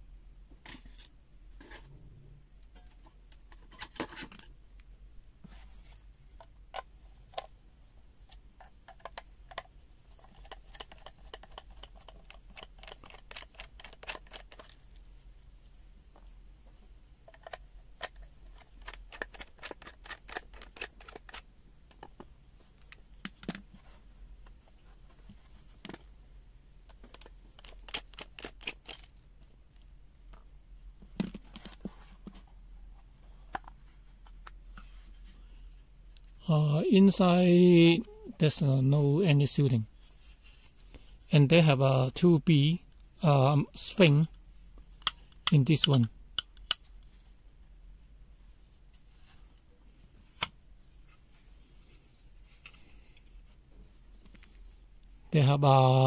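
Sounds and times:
hands opening plastic case: 8.6s - 15.1s, 17.3s - 23.7s, 26.9s - 29.2s.

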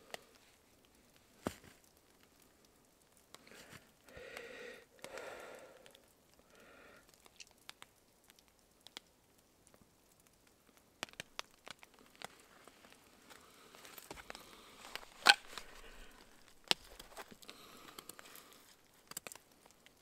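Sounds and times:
nose breaths: 3.4s - 7.1s, 13.2s - 16.6s, 17.2s - 18.8s
small sharp clicks: 16.6s - 20.0s.

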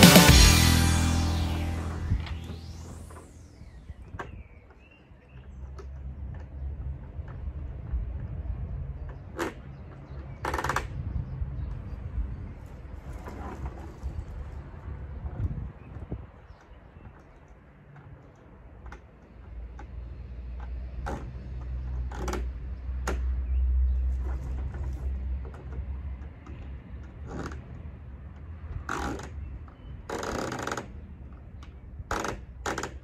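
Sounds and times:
low rumble: 0.0s - 3.6s.

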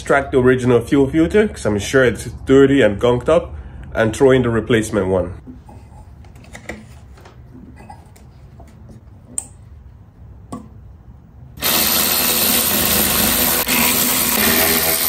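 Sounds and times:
power tool running: 11.6s - 15.0s.

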